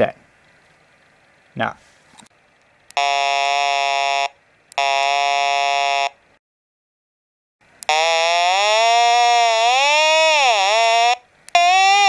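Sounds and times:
buzzy squealing test tone: 3.0 - 6.2, 7.9 - 12.0.

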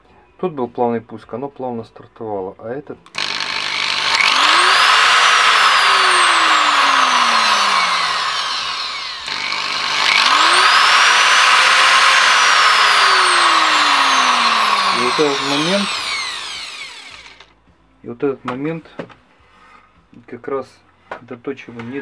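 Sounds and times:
angle grinder motor whine: 3.2 - 17.5.

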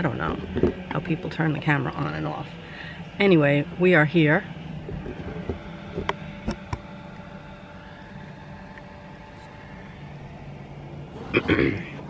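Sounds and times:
car cabin engine hum: 0.0 - 12.0.

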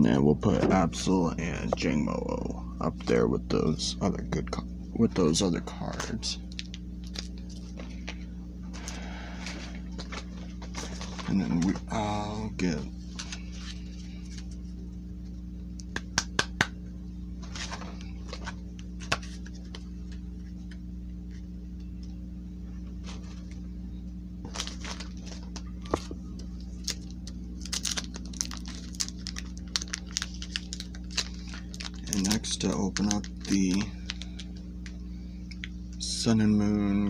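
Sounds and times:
steady low hum: 0.0 - 37.0
foil wrapper crinkling: 6.4 - 8.2, 8.8 - 12.1, 24.4 - 35.7.

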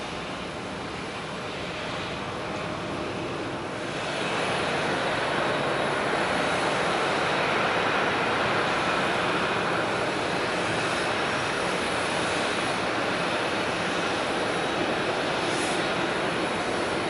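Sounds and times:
jet engines roaring: 0.0 - 17.0.

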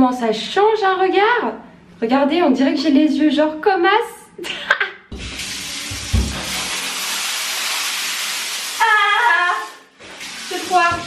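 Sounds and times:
shower spraying water: 5.2 - 11.0.

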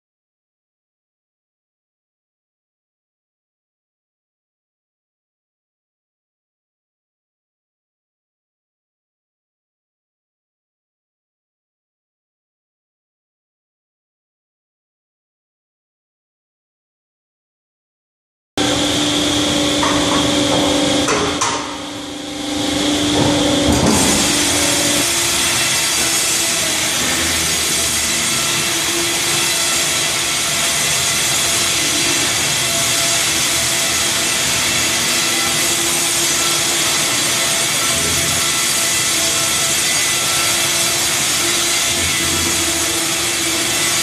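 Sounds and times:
band saw whine and rush: 18.6 - 44.0.

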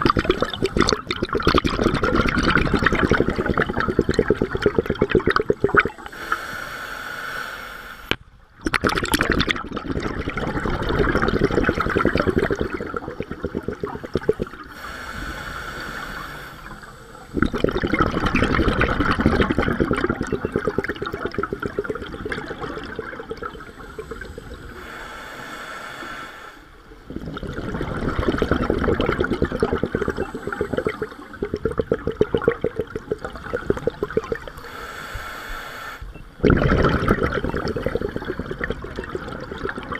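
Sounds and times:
exhaled bubbles burbling: 0.0 - 6.2, 8.6 - 24.8, 26.9 - 34.7, 36.1 - 39.9
regulator inhale hiss: 6.0 - 8.1, 14.1 - 17.4, 23.5 - 27.0, 30.0 - 31.4, 33.4 - 36.1.

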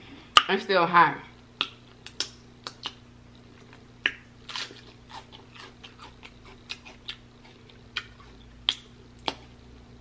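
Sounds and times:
lip smacks: 1.6 - 9.5
person chewing: 1.6 - 9.6.

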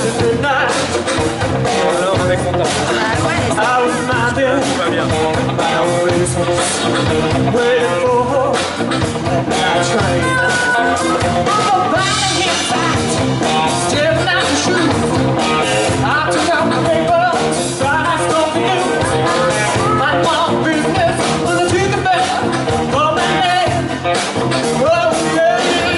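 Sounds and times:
bass guitar: 0.0 - 25.9
drums: 0.0 - 25.9
electric guitars: 0.0 - 25.9
person singing: 0.0 - 25.9.

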